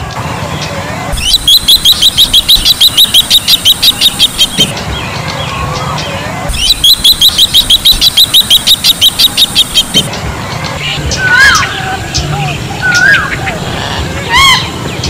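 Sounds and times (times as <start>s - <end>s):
bird calling rapid high notes: 0.6s - 14.8s.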